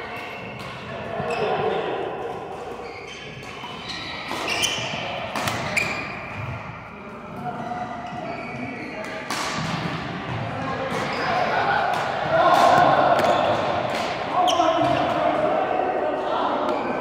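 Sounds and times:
shoes squeaking on court floor: 0.1 - 1.9, 2.6 - 9.2, 10.9 - 11.5, 14.4 - 15.1
racket hitting shuttlecock: 3.4 - 6.6, 9.2 - 10.1, 11.8 - 15.2.

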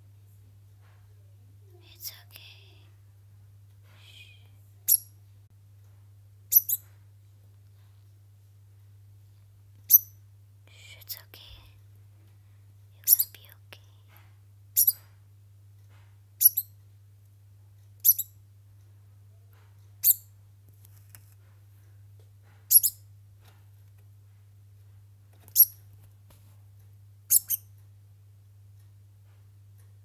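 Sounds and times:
degu squeaking: 4.9 - 5.1, 6.5 - 6.9, 9.9 - 10.1, 13.0 - 13.4, 14.8 - 15.0, 16.4 - 16.7, 18.0 - 18.3, 20.0 - 20.2, 22.7 - 23.0, 25.5 - 25.8, 27.3 - 27.7.

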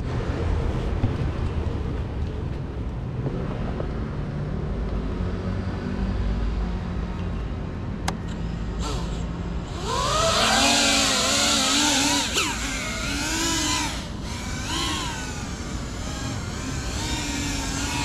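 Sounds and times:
drone motors whining: 8.3 - 18.0.

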